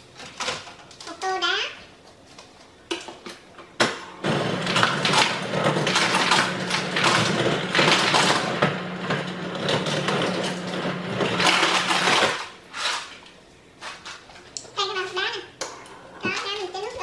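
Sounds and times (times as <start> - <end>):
motor hum: 3.9 - 12.6
ice clattering into bowl: 4.6 - 13.1.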